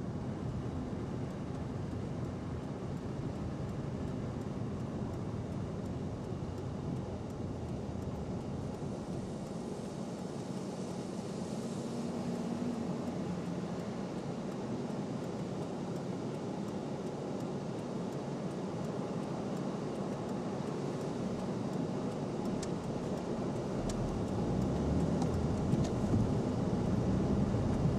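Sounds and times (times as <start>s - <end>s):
car engine rumbling: 22.5s - 27.9s.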